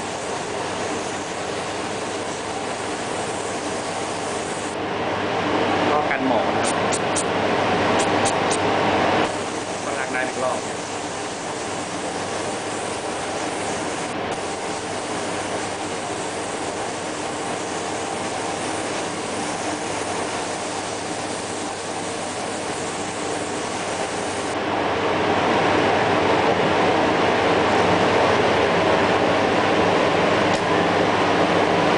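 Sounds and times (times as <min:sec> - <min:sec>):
spray nozzle hissing: 0:00.0 - 0:04.8, 0:09.3 - 0:24.6.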